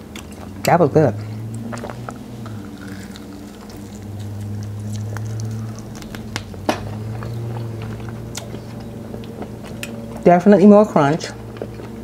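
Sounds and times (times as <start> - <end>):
crunching while chewing chicken: 1.6 - 10.2.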